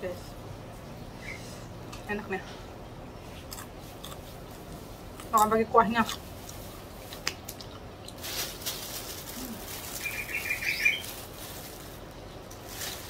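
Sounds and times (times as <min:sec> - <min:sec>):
plastic bag rustling: 0:08.1 - 0:13.0
small bird chirping: 0:09.9 - 0:11.1.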